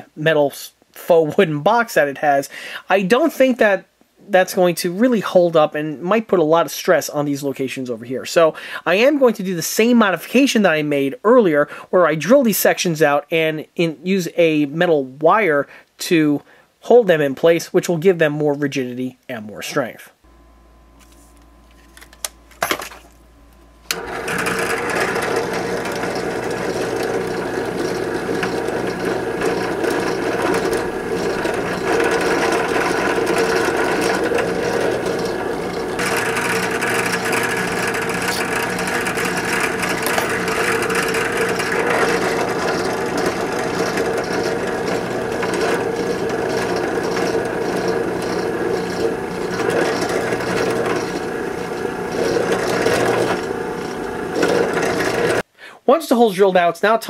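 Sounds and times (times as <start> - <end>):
bench drill press drilling: 23.8 - 55.5.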